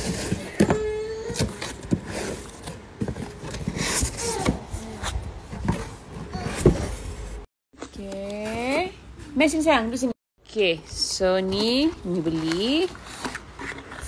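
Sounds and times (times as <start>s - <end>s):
cardboard scraping and knocking: 0.0s - 7.5s.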